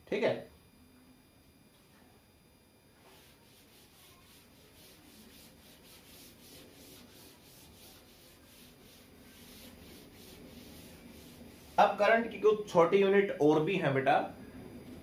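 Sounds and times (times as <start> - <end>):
duster wiping chalkboard: 3.0 - 12.6.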